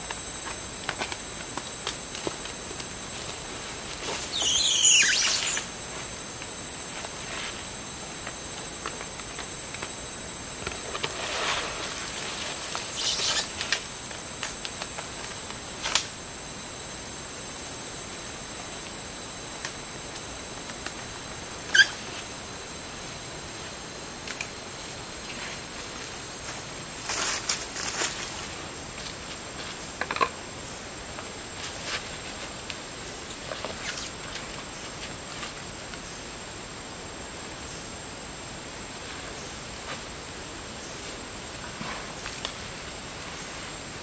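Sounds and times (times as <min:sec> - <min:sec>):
insect drone: 0:00.0 - 0:44.0.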